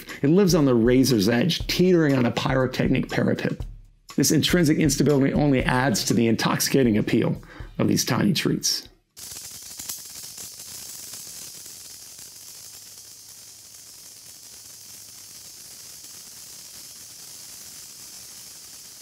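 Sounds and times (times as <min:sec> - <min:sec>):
sparkler crackles: 0:09.1 - 0:19.0
sparkler hissing: 0:09.1 - 0:19.0.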